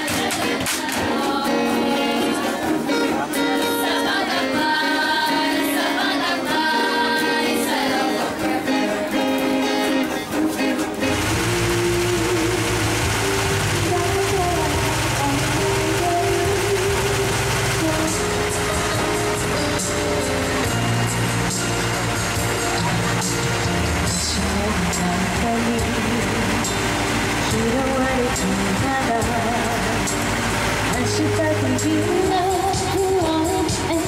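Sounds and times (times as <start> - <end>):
group singing: 0.0 - 19.9
electronic keyboard melody: 0.0 - 34.0
strummed acoustic guitars: 0.0 - 34.0.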